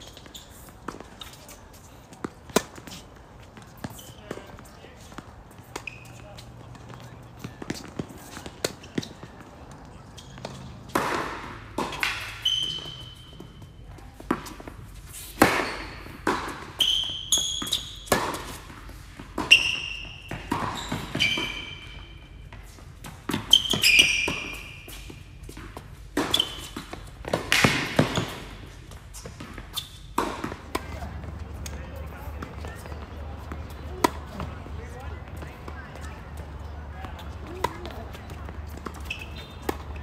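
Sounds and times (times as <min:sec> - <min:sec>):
shoes squeaking on court: 0:00.0 - 0:40.0
ball bouncing on court: 0:00.1 - 0:14.8, 0:23.0 - 0:40.0
racket striking ball: 0:02.2 - 0:04.5, 0:05.1 - 0:13.5, 0:14.2 - 0:21.9, 0:23.0 - 0:34.5.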